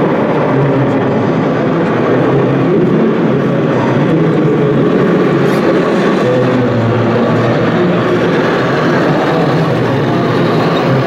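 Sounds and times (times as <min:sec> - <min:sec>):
diesel truck engine drone: 0:00.0 - 0:11.0.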